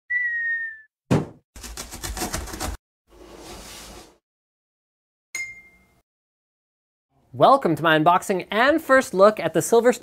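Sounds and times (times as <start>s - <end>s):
sharp thump: 1.1s - 1.4s.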